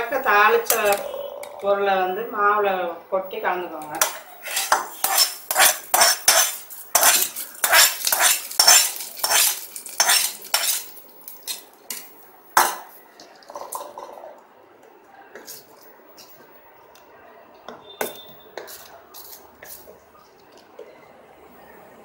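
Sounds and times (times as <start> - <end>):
faint mixing sounds: 3.5 - 22.0
metal ladle scraping steel pan: 4.0 - 10.9.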